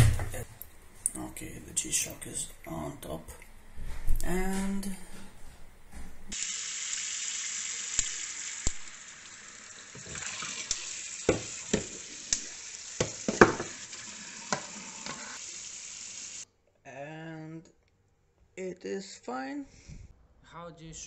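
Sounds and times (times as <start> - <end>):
tap running into a sink: 9.9 - 15.2
ice and plastic tub knocking: 13.0 - 13.8.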